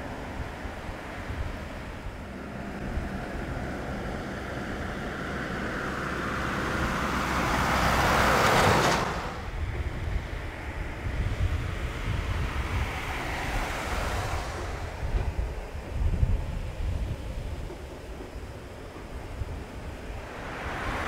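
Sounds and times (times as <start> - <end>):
jet engine noise: 0.0 - 21.0
wind buffeting microphone: 0.0 - 21.0.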